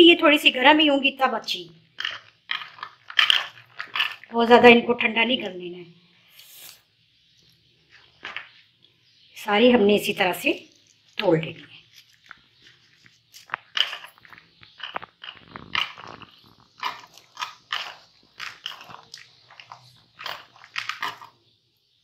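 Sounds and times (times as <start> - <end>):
bread crunching and crackling: 1.8 - 4.3, 7.2 - 9.0, 10.6 - 22.0.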